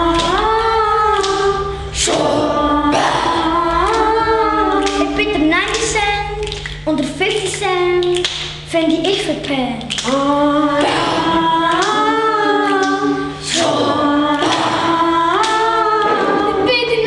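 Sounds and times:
performers singing long notes: 0.0 - 6.5, 9.9 - 16.7.

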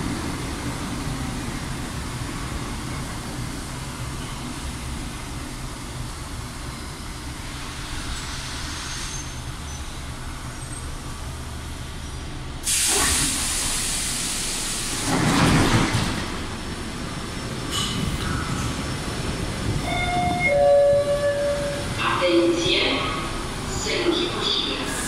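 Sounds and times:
subway car humming: 0.0 - 25.0
pneumatic doors hissing open: 12.6 - 15.3.

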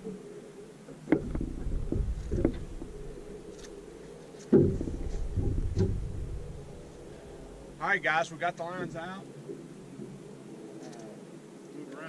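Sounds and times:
knocks and thumps on boat deck: 1.1 - 3.5, 4.5 - 7.8.

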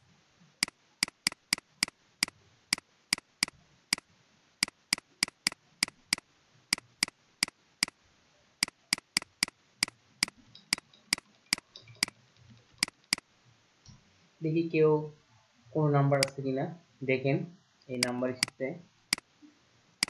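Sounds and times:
computer mouse button clicking: 1.0 - 1.9, 4.6 - 7.1, 8.6 - 12.1, 12.8 - 13.2, 18.0 - 19.2.

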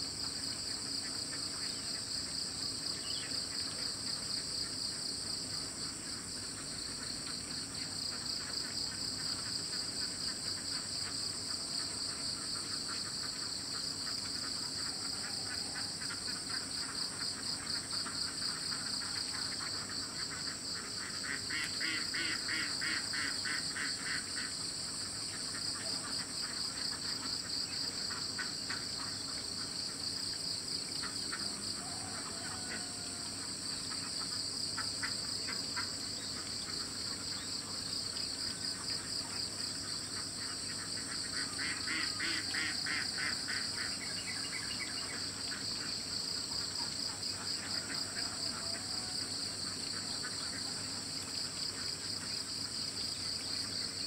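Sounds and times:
rapid pulsed insect trill: 0.0 - 54.0.

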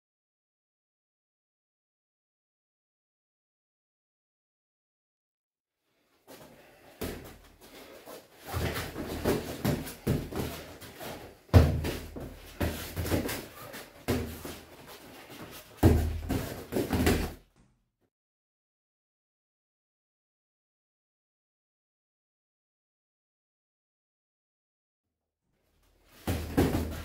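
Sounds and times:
boxing gloves thudding: 7.0 - 7.4, 8.4 - 14.6, 15.8 - 17.4, 26.2 - 27.0.

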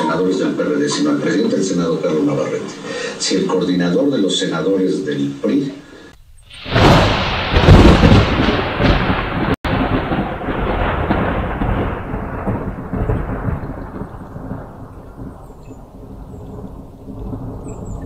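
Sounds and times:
thunder rumbling: 6.2 - 18.0.

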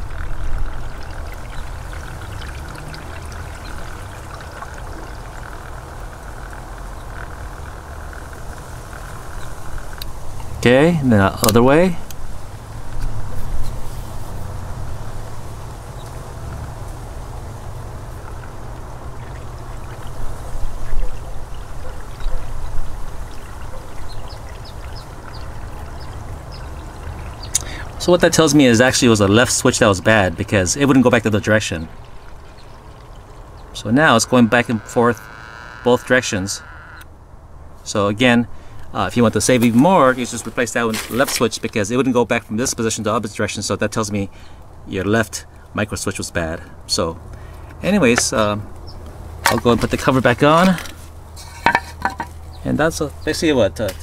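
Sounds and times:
small scattered ticks: 0.0 - 10.2
water rushing through pipes: 0.0 - 10.9, 14.4 - 36.7, 39.0 - 43.0.

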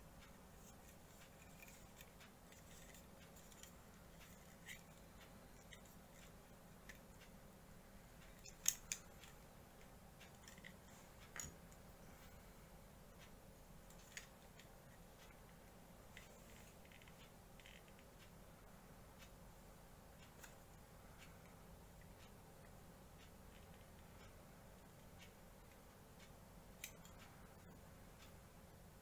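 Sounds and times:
plastic parts clicking together: 8.3 - 9.4.

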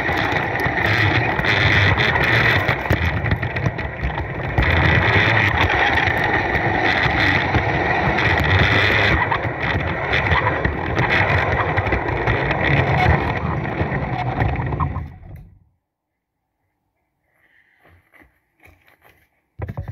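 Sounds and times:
electric motor whine: 0.0 - 15.6
wheels rumbling on rail: 0.0 - 15.6.

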